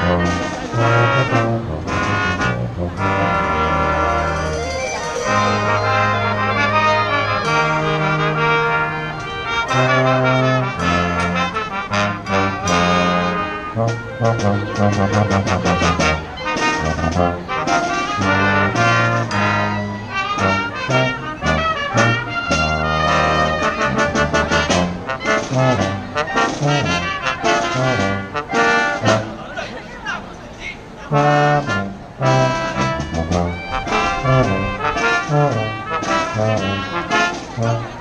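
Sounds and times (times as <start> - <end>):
brass band playing: 0.0 - 29.6, 30.8 - 38.0
sousaphone low bass notes: 3.6 - 7.5.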